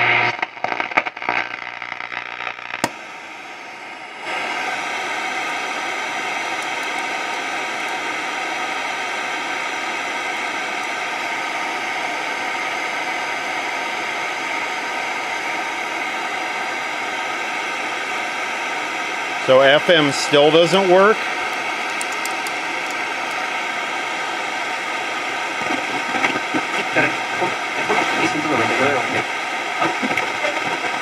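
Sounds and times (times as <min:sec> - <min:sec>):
radio static hiss: 0:00.0 - 0:31.0.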